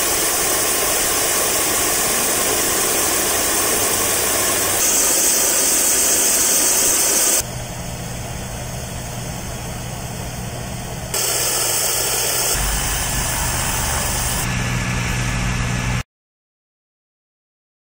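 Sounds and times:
heavy truck engines running: 12.6s - 16.0s.

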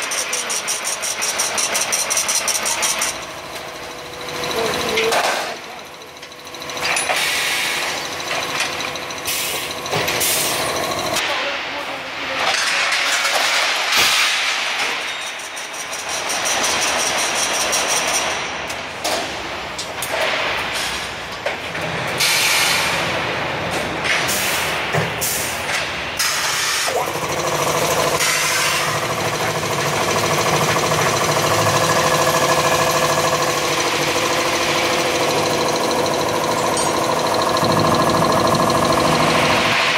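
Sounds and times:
mechanical clatter with metal knocks: 0.0s - 11.2s, 12.5s - 22.4s, 27.4s - 39.9s
steady machine hum: 0.0s - 11.2s, 26.9s - 39.9s.

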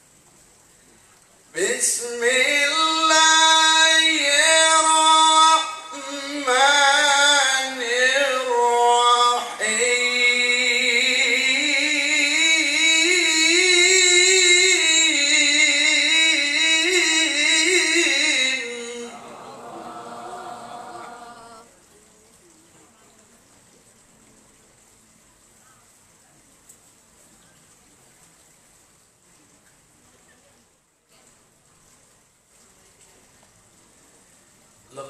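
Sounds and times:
man chanting into a microphone: 1.5s - 21.7s.

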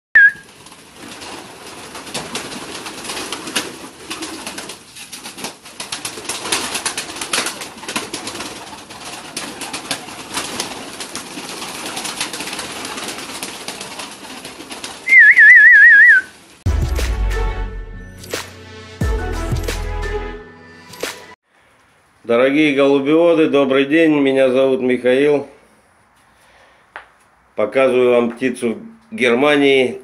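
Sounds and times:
pigeon wings clapping: 0.2s - 16.3s.

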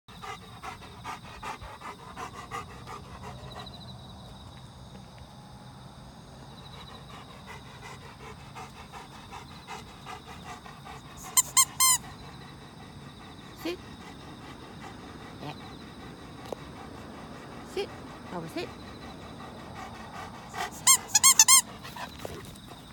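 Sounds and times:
dog panting: 0.1s - 4.6s, 6.3s - 22.9s
squeaky toy squeaks: 11.3s - 12.0s, 20.8s - 21.6s.

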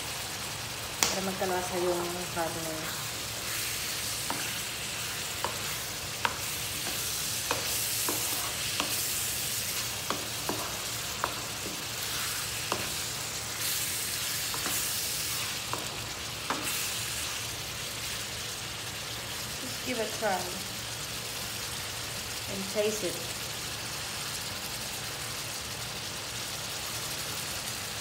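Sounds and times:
meat sizzling in frying pan: 0.0s - 28.0s
wooden spatula scraping pan: 2.8s - 17.4s.

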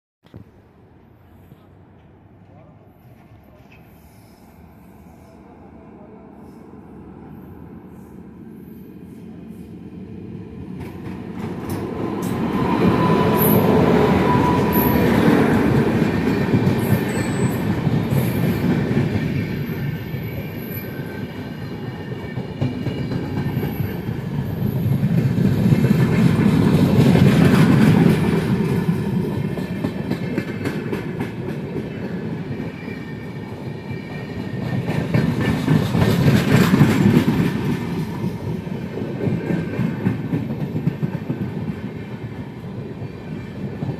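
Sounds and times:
train wheels clattering over rail joints: 34.5s - 38.4s.

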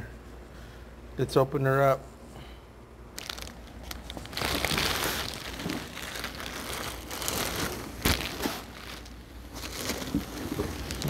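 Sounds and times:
plastic bag crinkling: 3.2s - 11.0s
cardboard rustling: 4.1s - 11.0s.

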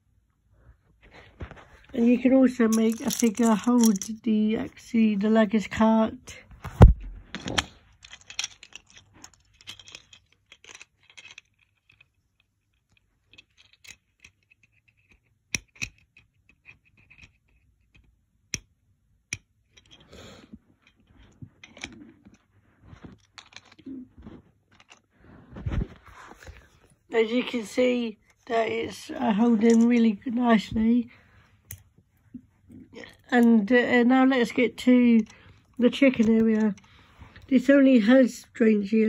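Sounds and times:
plastic toy parts clicking: 2.7s - 4.2s, 7.4s - 20.0s
fiddling and rubbing plastic: 20.7s - 37.6s.

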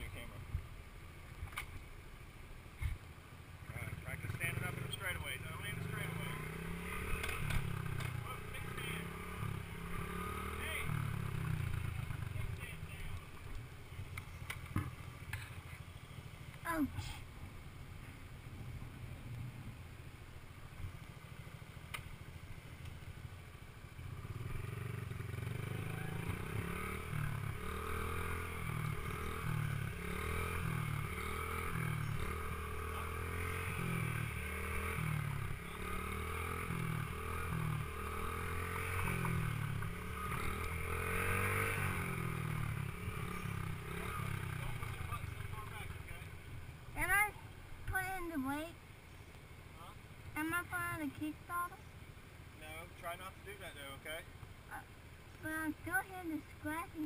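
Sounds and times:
dirt bike engine revving: 3.7s - 13.5s, 23.8s - 47.3s.

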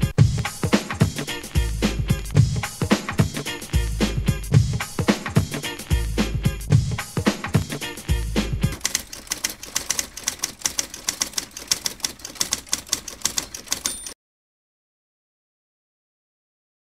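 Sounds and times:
music: 0.0s - 8.8s
typewriter keystrokes clacking: 8.7s - 14.2s.

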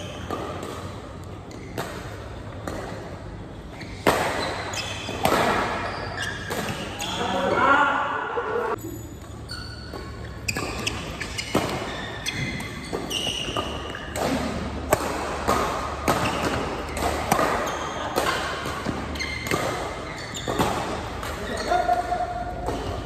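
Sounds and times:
shoe squeaks: 0.0s - 0.3s, 1.5s - 1.8s, 3.4s - 7.8s, 8.7s - 14.2s, 16.2s - 23.0s
rackets hitting shuttlecock: 0.0s - 7.5s, 9.2s - 23.0s.

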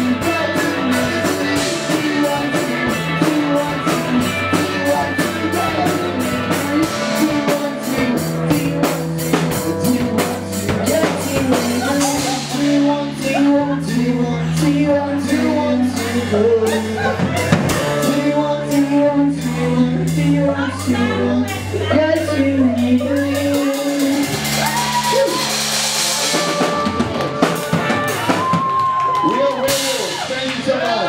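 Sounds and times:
drum kit: 0.0s - 31.0s
electric guitars: 0.0s - 31.0s
steady cymbal beat: 16.0s - 28.5s.

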